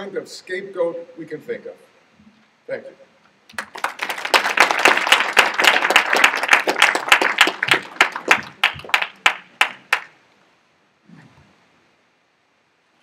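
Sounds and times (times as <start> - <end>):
audience applauding: 3.5 - 10.2.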